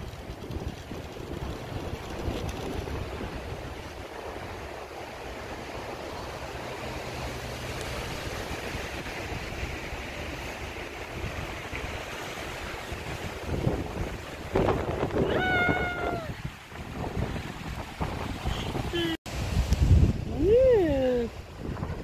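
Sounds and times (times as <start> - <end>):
wind buffeting microphone: 0.0 - 22.0
wind rushing through trees: 0.0 - 22.0.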